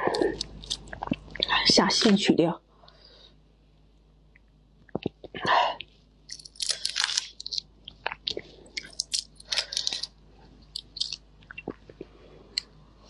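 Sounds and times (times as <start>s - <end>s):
shrimp shell crackling: 0.1s - 0.9s, 6.3s - 11.9s.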